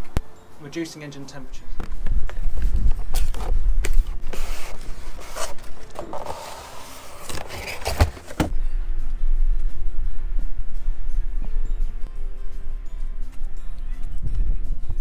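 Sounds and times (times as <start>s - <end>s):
cardboard scraping and rubbing: 3.2s - 8.5s.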